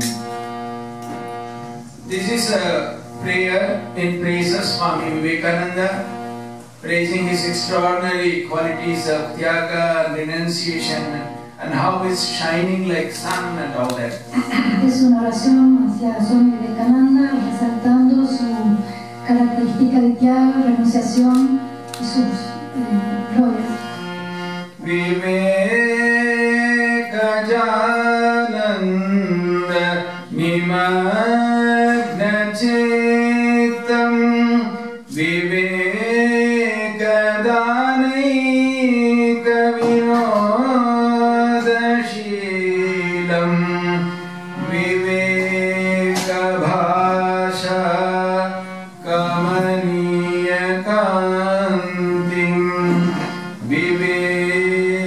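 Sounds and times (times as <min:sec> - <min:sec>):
harmonium playing: 0:00.0 - 0:55.0
man singing: 0:02.0 - 0:06.2, 0:06.8 - 0:14.0, 0:24.8 - 0:55.0.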